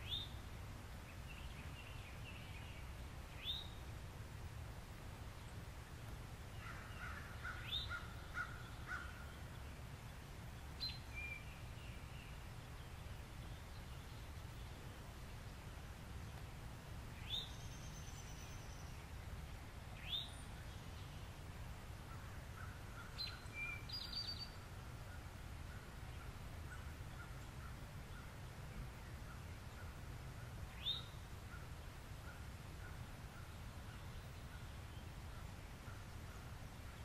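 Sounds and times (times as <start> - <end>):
wild birds calling: 6.5 - 9.6.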